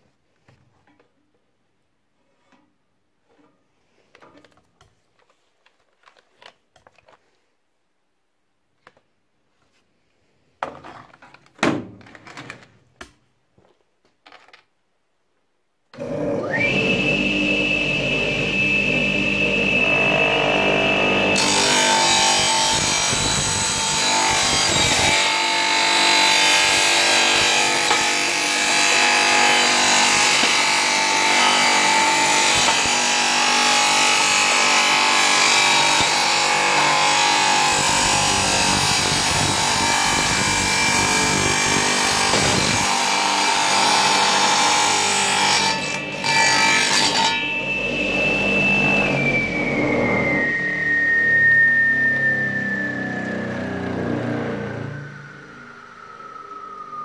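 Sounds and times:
tile saw motor whine: 16.0s - 57.0s
saw grinding through plastic: 18.5s - 46.3s.

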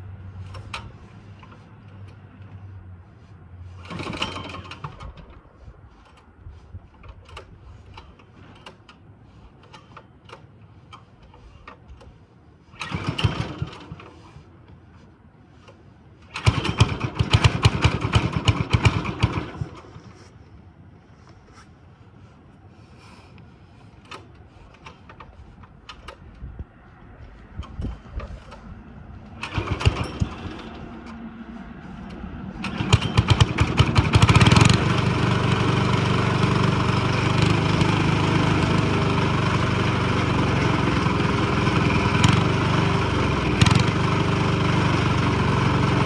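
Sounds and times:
diesel engine cranking: 0.0s - 20.3s, 22.7s - 26.6s, 27.3s - 46.0s
diesel engine running unevenly: 26.9s - 46.0s.

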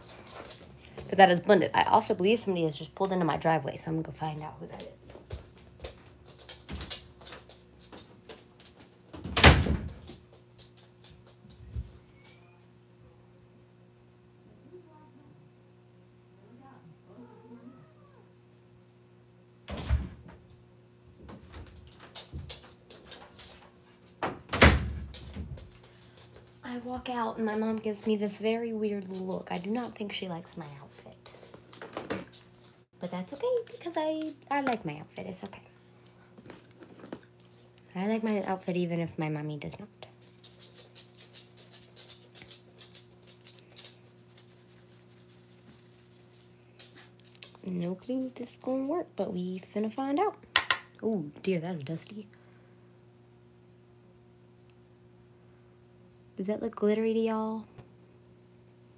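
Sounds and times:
low electrical hum: 0.0s - 58.9s
makeup brush scratching and tapping: 33.2s - 35.6s, 40.1s - 47.8s.

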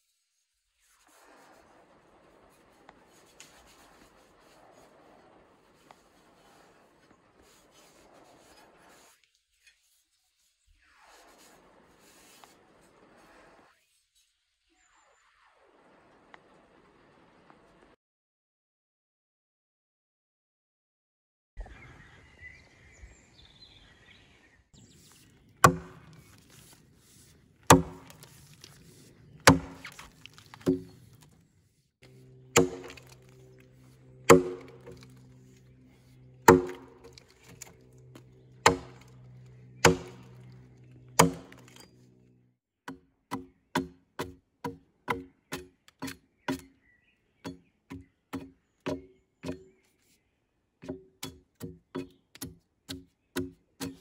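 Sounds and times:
axe chopping into log: 25.6s - 26.8s, 27.7s - 31.2s, 32.5s - 33.4s, 34.2s - 35.5s, 36.4s - 40.5s, 41.1s - 41.9s.

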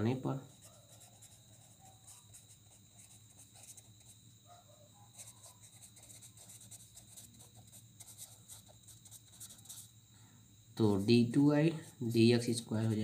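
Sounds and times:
pen scratching on paper: 0.5s - 4.2s, 5.1s - 9.9s.

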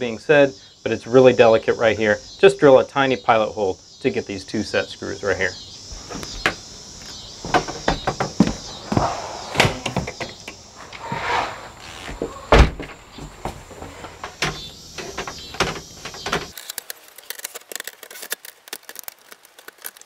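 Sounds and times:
door squeak: 7.6s - 12.9s.

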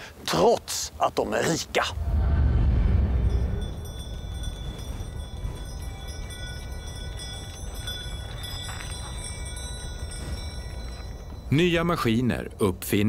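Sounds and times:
low rumbling noise: 1.8s - 8.4s
small bells jingling: 3.0s - 12.6s.

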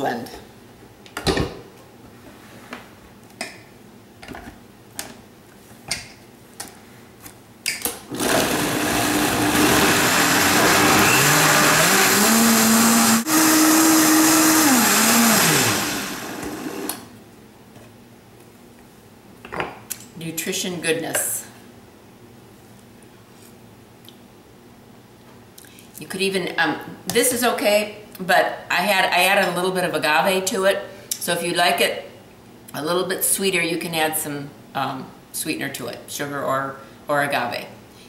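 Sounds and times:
blender motor running: 8.1s - 17.0s.

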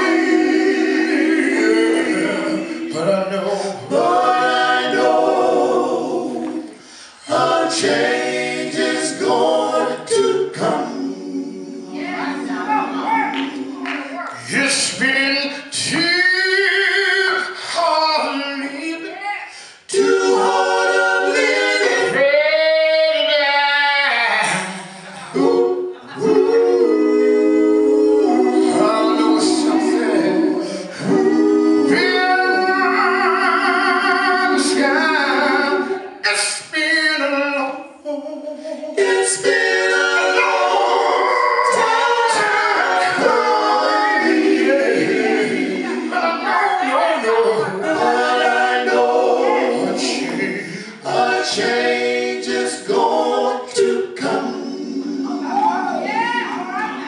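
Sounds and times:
male vocal group singing a cappella: 0.0s - 57.0s.

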